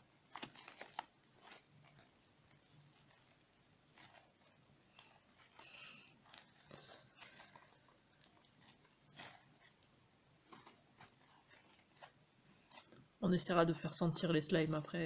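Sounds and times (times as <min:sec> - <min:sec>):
rustling: 0:00.0 - 0:15.0.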